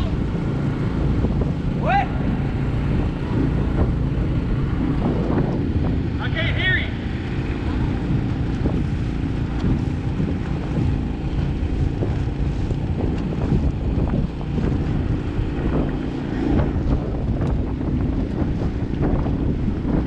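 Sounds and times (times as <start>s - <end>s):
outboard boat motor running: 0.0s - 20.0s
wind buffeting microphone: 0.0s - 20.0s
water sloshing against hull: 6.9s - 20.0s.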